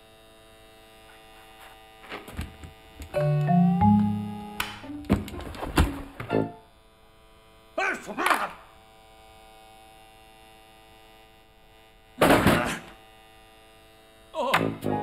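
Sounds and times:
electrical hum: 0.0s - 15.0s
man exclaiming: 7.8s - 8.6s, 12.4s - 12.9s, 14.4s - 14.6s.

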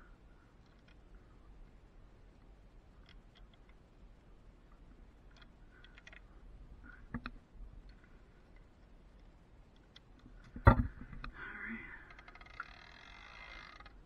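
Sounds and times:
light clicks and ticks: 0.5s - 1.2s, 2.4s - 3.8s, 4.6s - 11.4s.

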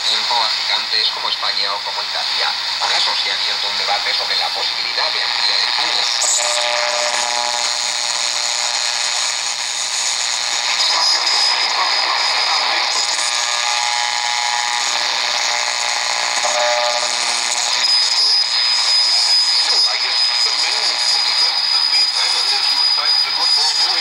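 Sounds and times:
pitched radio tone: 0.0s - 24.0s
radio static and hiss: 0.0s - 24.0s
steady high whistle: 17.8s - 24.0s.

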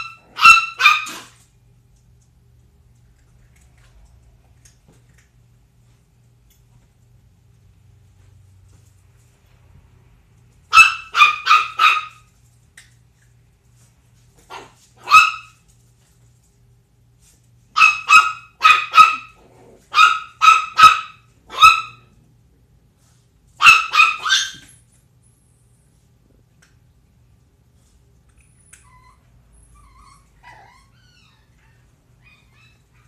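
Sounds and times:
puppy barking in high yips: 0.0s - 1.4s, 10.7s - 12.3s, 14.5s - 15.6s, 17.7s - 22.1s, 23.6s - 24.8s.

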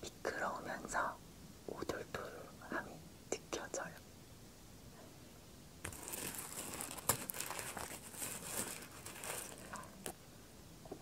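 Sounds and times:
hands crumpling crinkly object: 5.8s - 10.2s.

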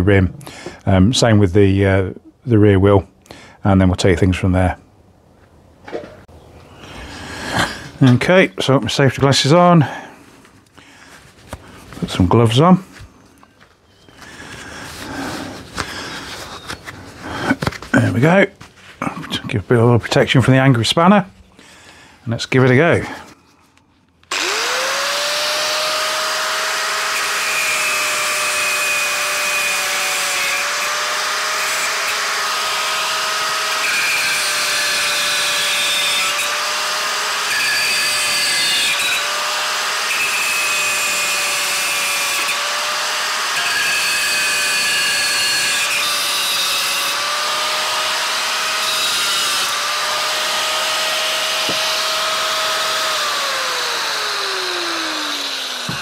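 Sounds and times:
angle grinder cutting steel: 24.3s - 56.0s.

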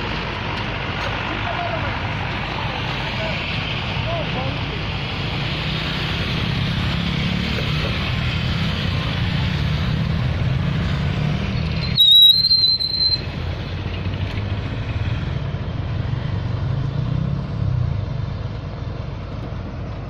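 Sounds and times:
high squeal: 11.6s - 13.4s.

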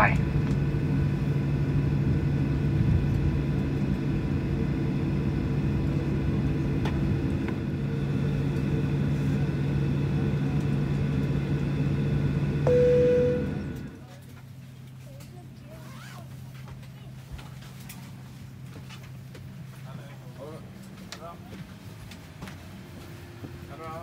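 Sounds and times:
aircraft cabin engine hum: 0.0s - 14.1s
loud single steady tone: 12.6s - 13.7s.

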